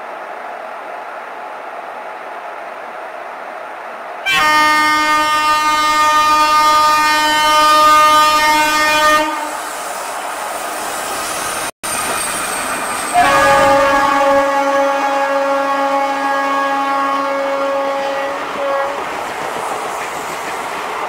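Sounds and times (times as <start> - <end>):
passing train rumble: 0.0 - 21.0
locomotive air horn blast: 4.2 - 9.7, 13.1 - 19.0.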